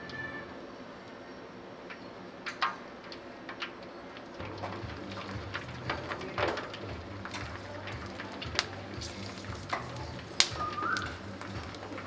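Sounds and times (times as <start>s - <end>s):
short rising squeak: 0.0s - 0.6s.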